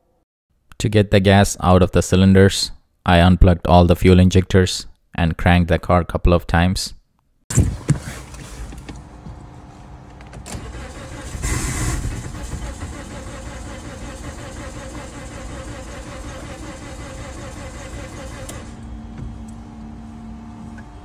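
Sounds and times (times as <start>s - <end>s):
starter cranking car engine: 10.4s - 18.9s.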